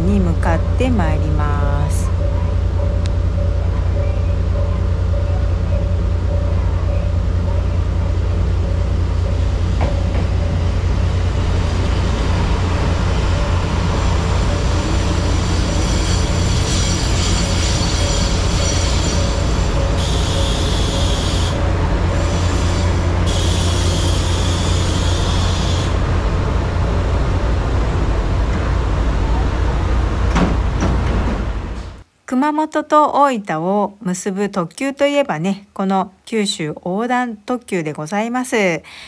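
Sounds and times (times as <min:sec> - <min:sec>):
diesel train rumbling: 0:00.0 - 0:32.0
train brakes squealing: 0:15.1 - 0:21.6, 0:22.2 - 0:26.0.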